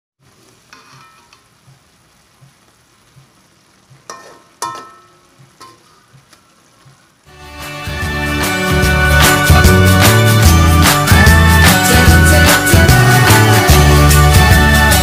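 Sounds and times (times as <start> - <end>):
sauce sizzling in a wok: 0.2 - 15.0
spatula scraping a wok: 0.7 - 1.4.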